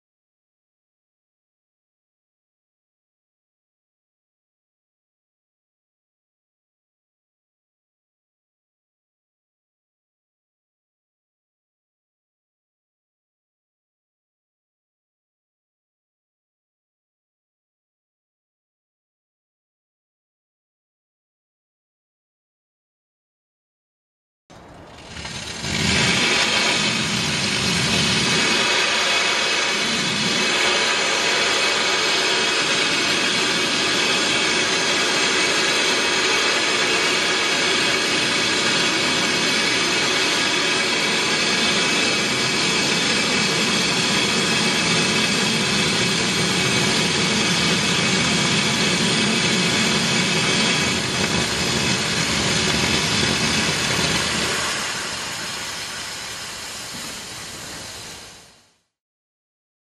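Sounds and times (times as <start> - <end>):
steam hissing from locomotive: 24.9 - 58.9.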